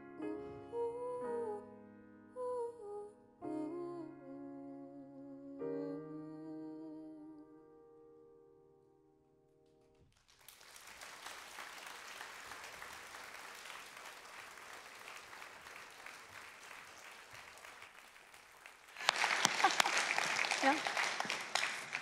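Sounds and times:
piano: 0:00.0 - 0:22.0
audience applauding: 0:10.1 - 0:22.0.

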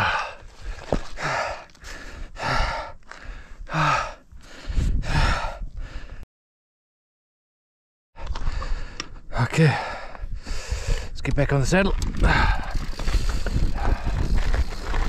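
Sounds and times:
man gasping breaths: 0:00.0 - 0:06.2, 0:08.2 - 0:11.2, 0:12.2 - 0:15.0.

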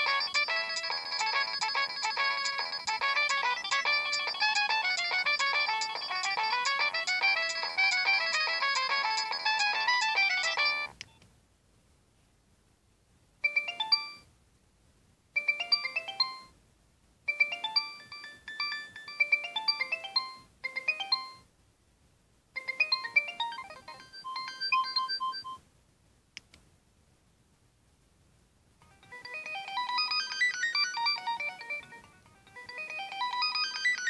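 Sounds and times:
mobile phone ringtones: 0:00.0 - 0:10.9, 0:13.4 - 0:14.3, 0:15.4 - 0:16.6, 0:17.3 - 0:21.5, 0:22.6 - 0:25.6, 0:28.8 - 0:34.0.

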